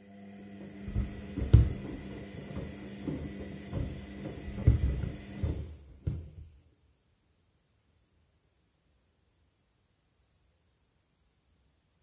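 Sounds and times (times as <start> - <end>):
washing machine motor humming: 0.0 - 6.4
wet shoes thudding in drum: 0.9 - 6.3.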